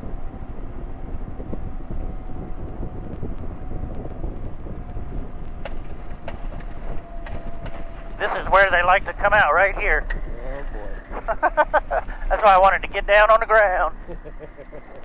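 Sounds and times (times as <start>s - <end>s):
aircraft engine at low power: 0.0s - 15.0s
wind and rumble: 0.0s - 15.0s
sharp knocks: 5.6s - 8.2s.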